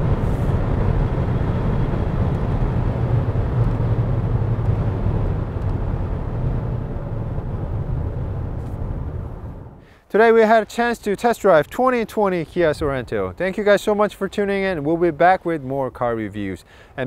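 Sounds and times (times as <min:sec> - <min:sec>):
car road and wind noise: 0:00.0 - 0:09.9.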